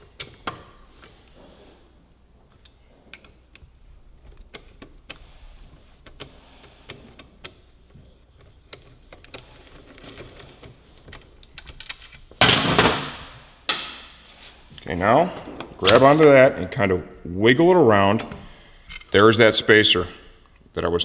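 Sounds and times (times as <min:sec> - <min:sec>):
bolt clattering: 0:08.4 - 0:13.1.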